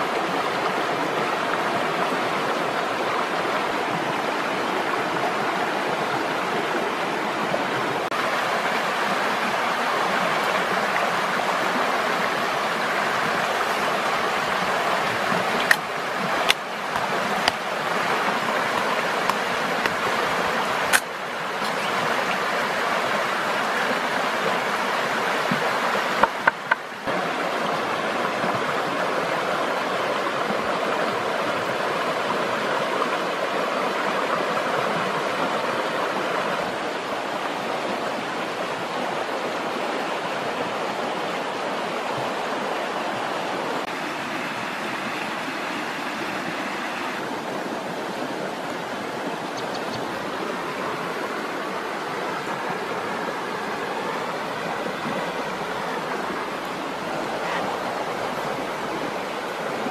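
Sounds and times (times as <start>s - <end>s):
river water rushing over rocks: 0.0s - 59.9s
sharp clicks: 49.5s - 50.1s.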